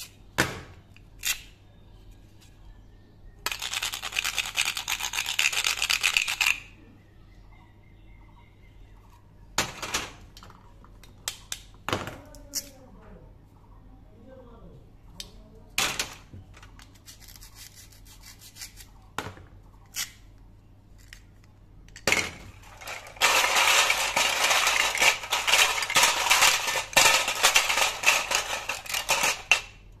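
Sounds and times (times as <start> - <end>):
plastic pieces clicking and tapping: 3.4 - 6.7, 10.3 - 12.8, 21.0 - 29.9
plastic toys rattling in steel pot: 3.5 - 6.7, 22.0 - 29.9.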